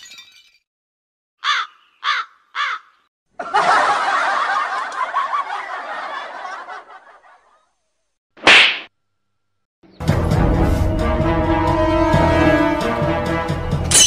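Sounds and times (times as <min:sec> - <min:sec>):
burst of laughter: 0:03.4 - 0:07.7.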